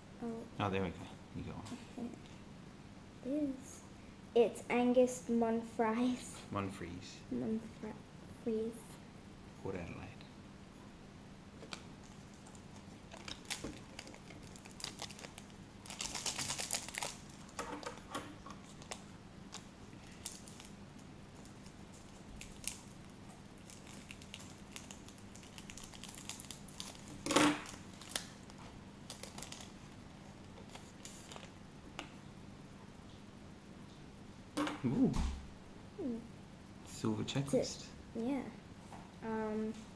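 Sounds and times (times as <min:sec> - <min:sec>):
foil wrappers crinkling and tearing: 0:11.6 - 0:31.6.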